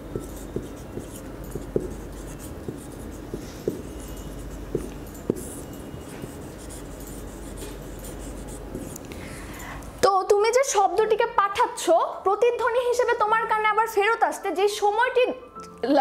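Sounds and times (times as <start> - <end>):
marker pen writing on whiteboard: 0.0 - 9.1.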